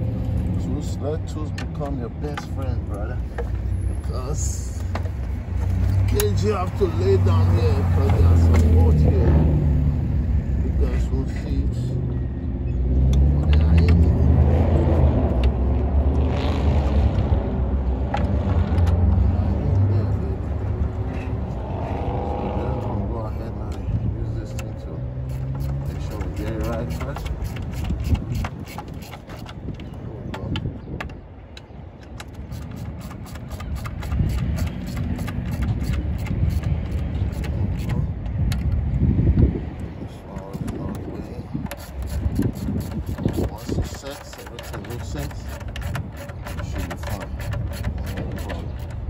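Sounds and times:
socket ratchet clicking: 25.3s - 29.6s, 32.1s - 38.0s, 41.6s - 49.0s.

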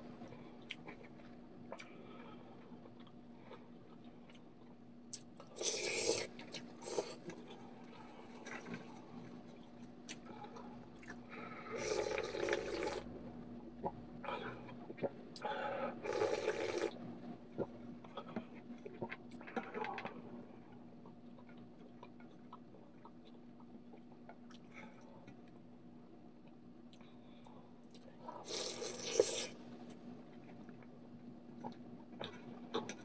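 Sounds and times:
noodles being slurped: 5.5s - 9.3s, 11.0s - 13.1s, 28.4s - 29.6s.

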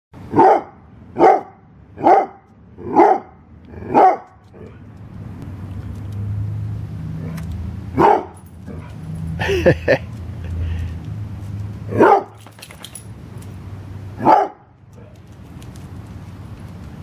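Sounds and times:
dog barking: 0.3s - 4.7s, 8.0s - 9.0s, 11.9s - 12.4s, 14.2s - 15.2s.

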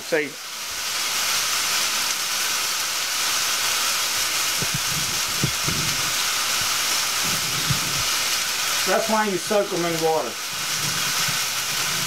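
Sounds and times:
fish sizzling on griddle: 0.0s - 12.0s.

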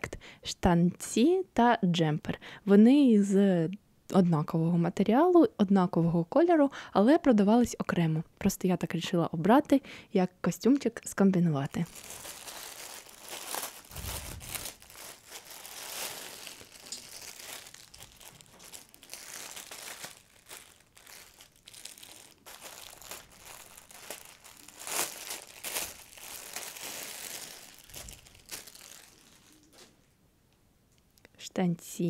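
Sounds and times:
plastic bag crinkling: 11.7s - 30.0s.

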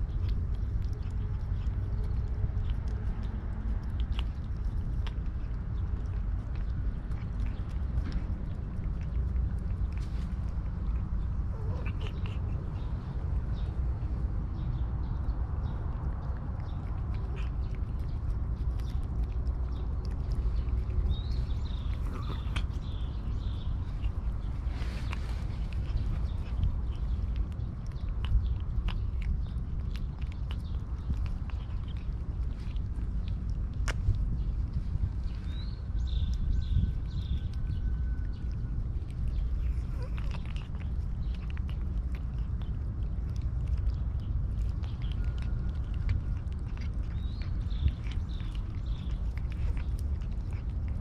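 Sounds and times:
cat licking: 0.0s - 51.0s
steady low rumble: 0.0s - 51.0s
bird chirping: 9.8s - 33.5s, 34.4s - 50.7s.

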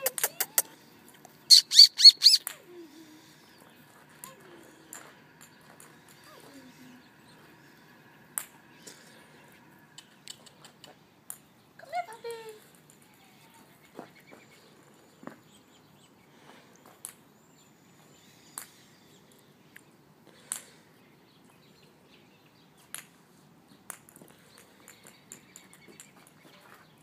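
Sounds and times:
faint outdoor background noise: 0.0s - 27.0s.

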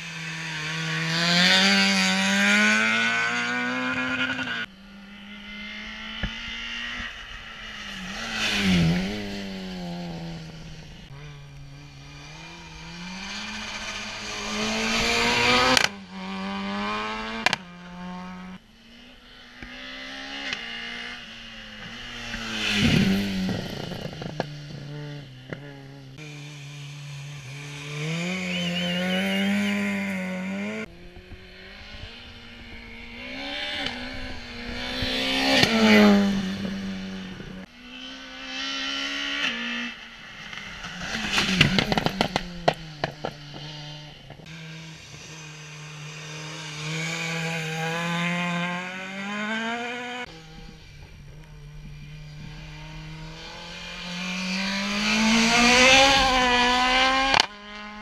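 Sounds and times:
rally car engines revving: 0.0s - 58.0s
car passing close by: 5.4s - 18.6s.

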